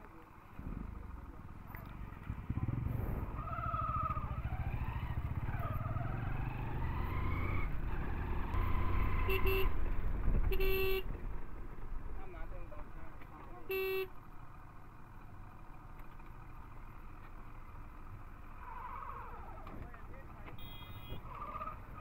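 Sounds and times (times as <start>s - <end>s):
motorcycle engine running: 0.1s - 18.4s
motorcycle horn toots: 9.2s - 9.8s, 10.5s - 11.1s, 13.6s - 14.2s, 20.6s - 21.2s.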